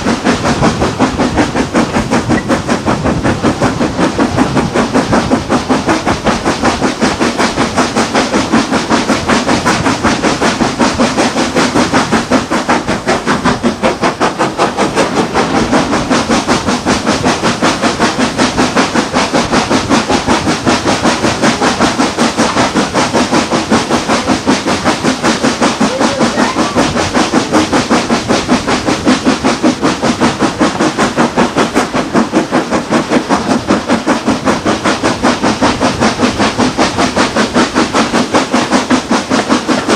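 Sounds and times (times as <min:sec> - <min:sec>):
steam locomotive chuffing: 0:00.0 - 0:39.9
train running noise: 0:00.0 - 0:39.9.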